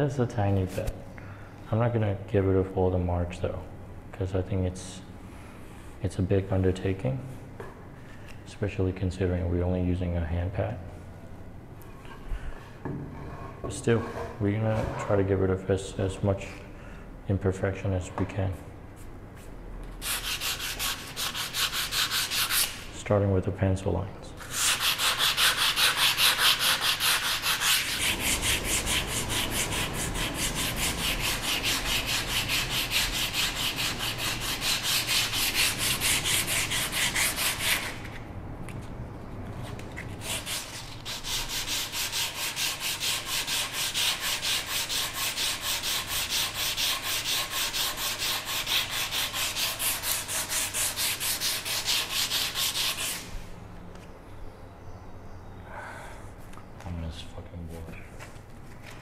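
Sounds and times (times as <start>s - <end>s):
sandpaper rubbing on wood: 20.0s - 22.9s, 24.4s - 38.1s, 40.2s - 53.4s.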